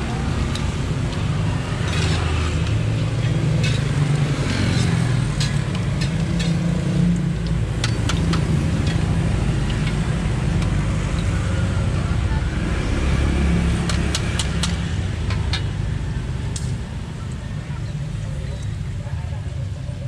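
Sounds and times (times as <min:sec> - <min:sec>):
metal utensils clinking on wok: 0:00.3 - 0:10.1.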